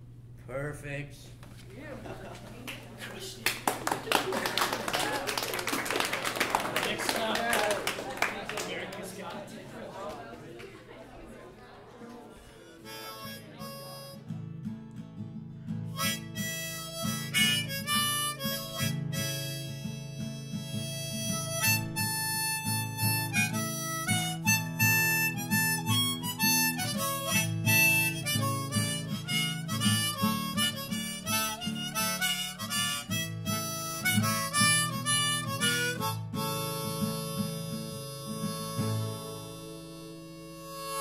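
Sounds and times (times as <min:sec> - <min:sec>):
guitar accompaniment: 0:12.4 - 0:41.0
harmonica melody: 0:12.5 - 0:41.0.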